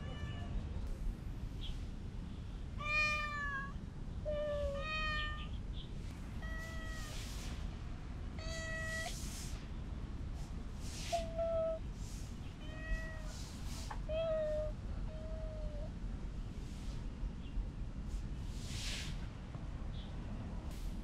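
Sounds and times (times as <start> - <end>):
cat meowing: 0.0 - 0.6, 2.8 - 5.6, 6.4 - 7.2, 8.4 - 9.2, 12.6 - 15.9.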